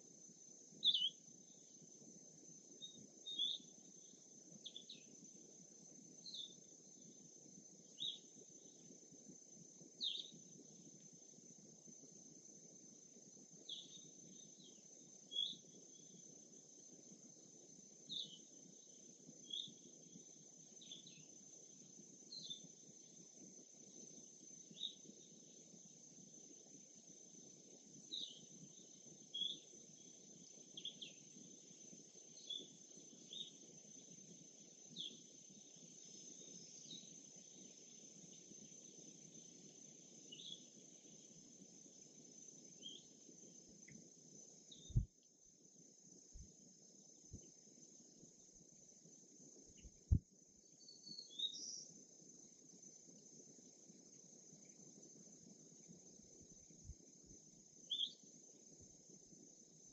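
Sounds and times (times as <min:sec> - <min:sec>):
insect drone: 0:00.0 - 0:59.9
bird chirps: 0:00.8 - 0:01.2, 0:02.8 - 0:03.7, 0:44.7 - 0:45.1, 0:50.8 - 0:51.9, 0:57.9 - 0:58.2.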